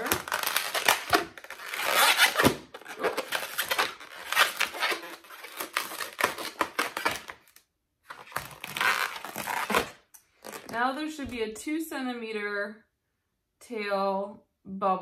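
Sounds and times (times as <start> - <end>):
latex balloon squeaking and creaking: 0.0 - 11.0.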